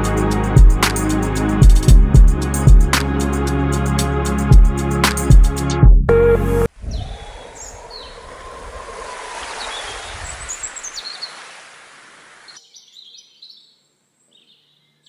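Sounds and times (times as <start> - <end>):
steady rushing noise: 6.7 - 12.5
small birds chirping: 6.8 - 15.0.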